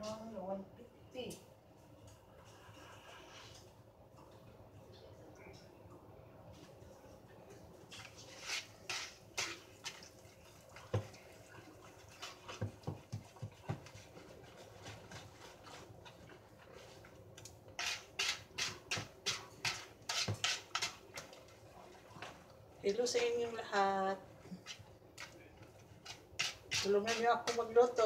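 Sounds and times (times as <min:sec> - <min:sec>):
whisk swishing batter: 0:07.9 - 0:22.4, 0:24.5 - 0:28.0
whisk knocking against bowl: 0:12.2 - 0:15.5, 0:17.8 - 0:21.3, 0:26.0 - 0:28.0.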